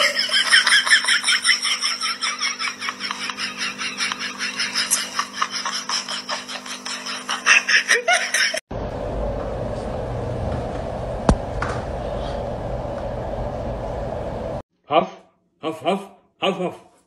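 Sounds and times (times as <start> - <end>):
person laughing hard: 0.0 - 8.6
steady hum: 8.7 - 14.6.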